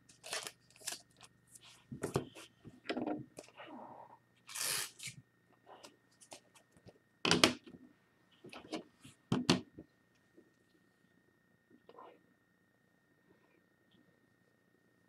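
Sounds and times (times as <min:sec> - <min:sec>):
cards rustling sliding: 0:04.5 - 0:05.2.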